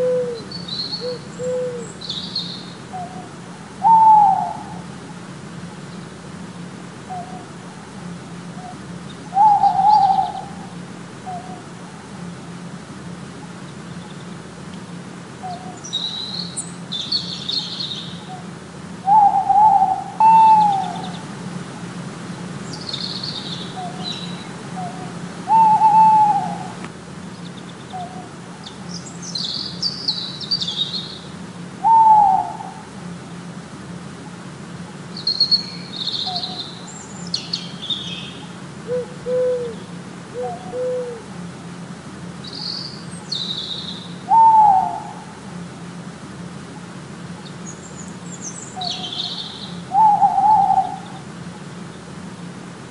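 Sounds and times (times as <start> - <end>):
owl hooting: 0.0 - 5.2, 7.0 - 7.8, 8.4 - 11.8, 15.4 - 21.3, 22.6 - 26.8, 27.9 - 33.2, 34.2 - 41.4, 42.4 - 45.6, 46.8 - 51.3
small birds chirping: 0.0 - 6.3, 7.0 - 11.8, 13.5 - 14.8, 15.4 - 21.4, 22.2 - 33.5, 34.1 - 41.3, 42.3 - 45.4, 46.5 - 52.6
steady low hum: 0.0 - 52.9.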